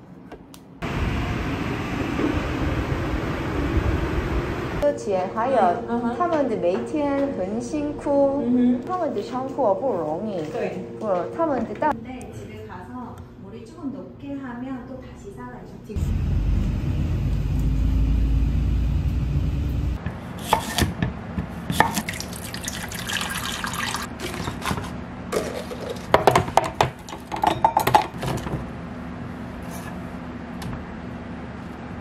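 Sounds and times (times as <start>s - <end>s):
low vehicle rumble: 0.8s - 4.8s, 16.0s - 20.0s
liquid pouring: 21.9s - 24.1s.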